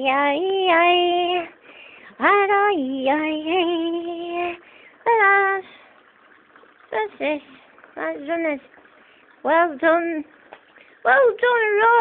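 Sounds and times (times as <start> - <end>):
woman singing: 0.0 - 5.9, 6.9 - 8.7, 9.4 - 10.3, 11.0 - 12.0.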